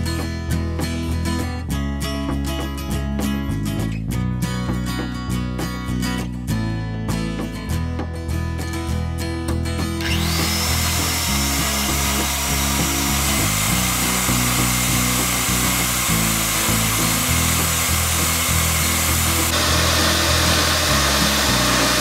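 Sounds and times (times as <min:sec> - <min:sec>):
acoustic guitar music: 0:00.0 - 0:22.0
electric hand mixer whining: 0:10.0 - 0:22.0.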